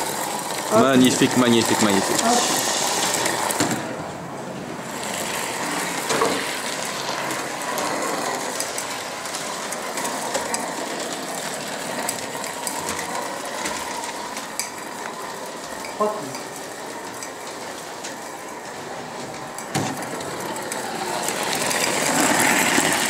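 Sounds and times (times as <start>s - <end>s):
steam hiss: 0.0s - 4.0s, 4.8s - 23.0s
model steam tram clattering: 4.8s - 23.0s.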